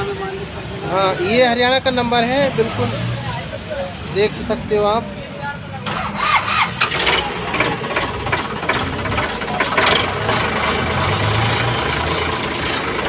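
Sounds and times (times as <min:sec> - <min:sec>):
tractor diesel engine idling: 0:05.8 - 0:13.0.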